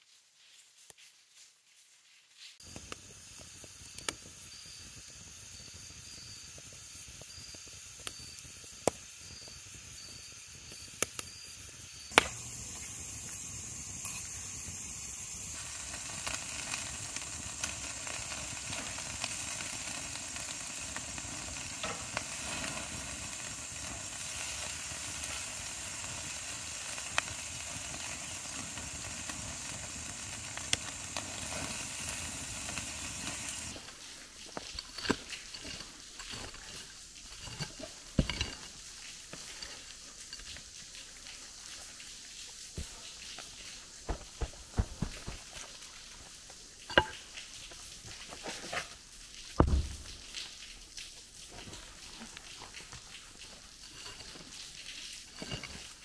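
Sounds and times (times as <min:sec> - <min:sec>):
wood fire crackling: 0:02.6 - 0:09.1, 0:09.8 - 0:56.0
bacon sizzling: 0:02.6 - 0:56.0.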